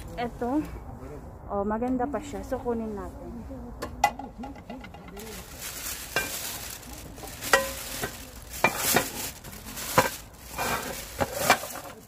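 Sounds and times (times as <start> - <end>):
pots and pans clanking: 6.1 - 6.6, 7.2 - 12.0.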